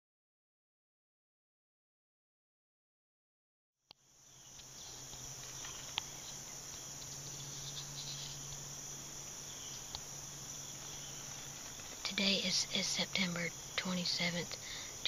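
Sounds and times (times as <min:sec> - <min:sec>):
insect chorus: 0:03.9 - 0:15.0.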